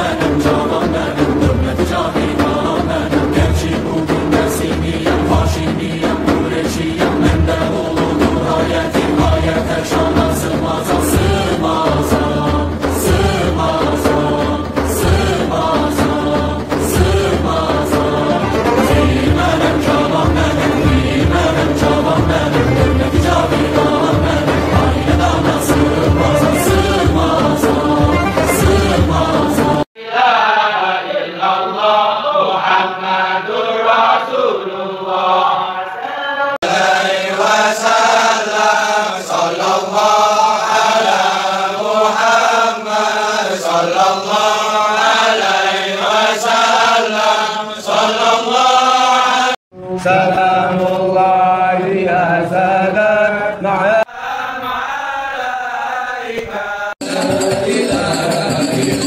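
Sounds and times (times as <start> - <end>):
men chanting devotional verses: 0.0 - 59.0.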